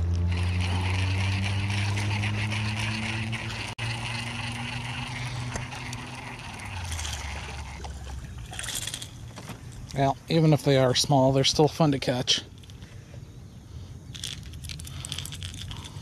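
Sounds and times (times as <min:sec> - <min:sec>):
boat motor humming: 0:00.0 - 0:10.3.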